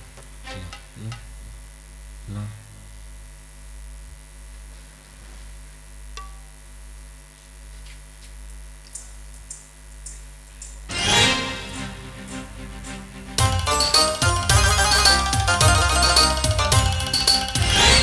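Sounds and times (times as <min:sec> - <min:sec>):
faint clicks and ticks: 0:08.8 - 0:10.9
sound system hum: 0:08.9 - 0:18.0
band instrument notes: 0:10.9 - 0:18.0.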